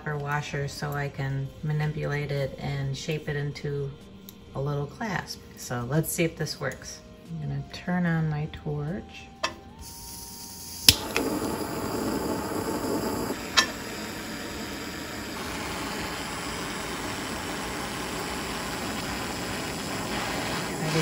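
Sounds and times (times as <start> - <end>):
torch igniting click: 9.4 - 21.0
torch flame hissing: 9.8 - 21.0.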